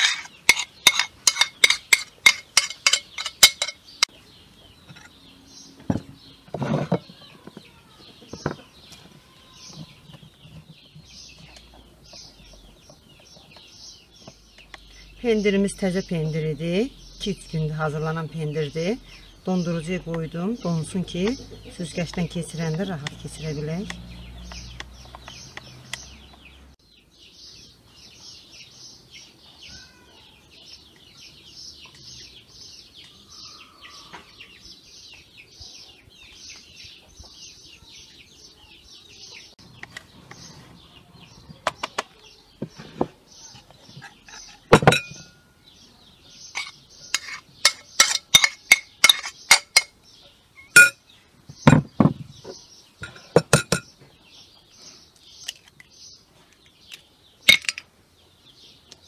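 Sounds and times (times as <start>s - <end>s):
utensils clinking against china: 0.0s - 4.1s, 44.0s - 45.4s, 46.5s - 50.0s, 50.6s - 51.0s, 57.5s - 57.9s.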